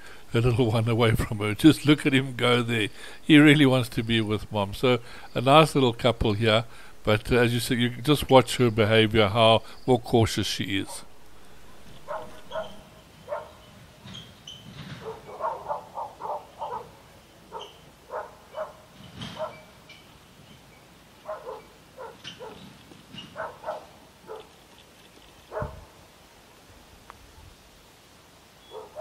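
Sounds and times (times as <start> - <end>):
animal barking calls: 10.8 - 13.7, 15.0 - 19.8, 21.2 - 24.6, 25.5 - 26.0, 28.6 - 29.0.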